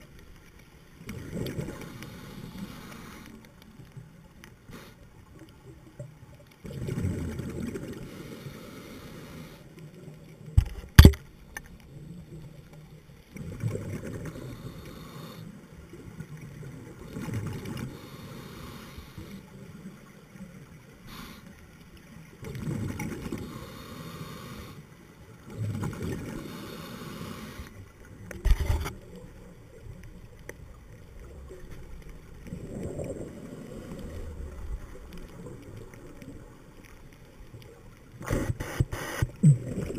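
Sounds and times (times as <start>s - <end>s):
muffled underwater exhale bubbling: 6.6s - 9.6s, 13.4s - 19.6s, 25.4s - 29.9s, 30.9s - 36.7s, 38.2s - 39.9s.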